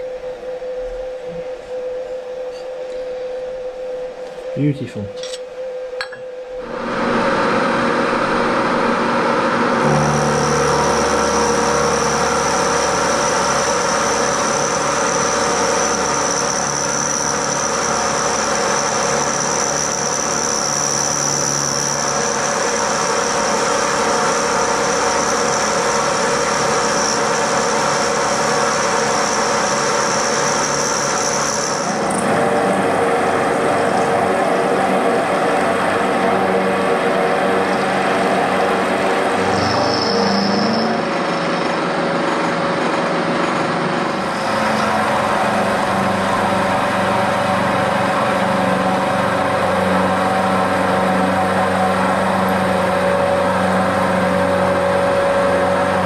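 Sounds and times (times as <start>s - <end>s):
low hum: 0.0s - 18.6s
high steady whine: 0.0s - 56.0s
milling machine cutting metal: 7.1s - 56.0s.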